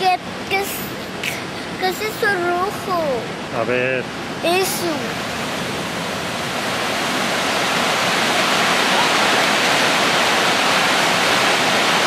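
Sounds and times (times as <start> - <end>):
water rushing over rocks: 4.1 - 12.0.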